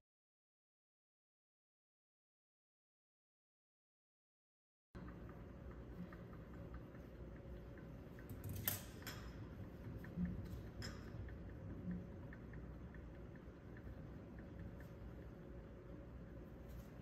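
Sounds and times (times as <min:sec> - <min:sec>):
faint ticking: 0:05.0 - 0:08.4, 0:09.3 - 0:16.7.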